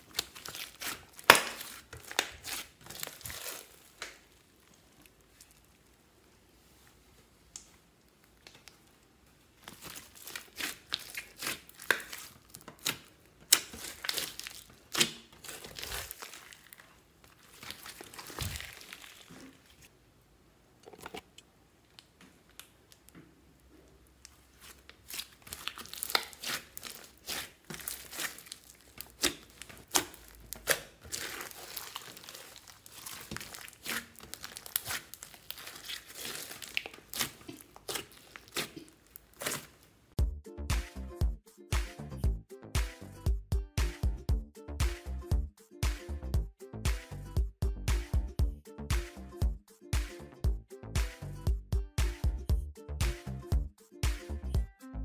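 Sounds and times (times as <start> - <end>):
slime crackling and popping: 0.0 - 6.0, 7.5 - 19.9, 24.2 - 40.0.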